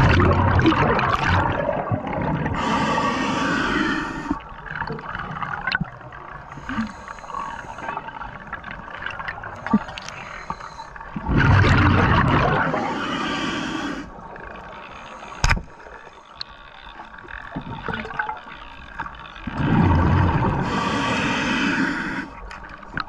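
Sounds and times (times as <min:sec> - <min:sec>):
exhaled bubbles underwater: 0:00.0 - 0:13.6, 0:17.5 - 0:18.6, 0:19.3 - 0:23.0
quiet crackling: 0:00.0 - 0:23.0.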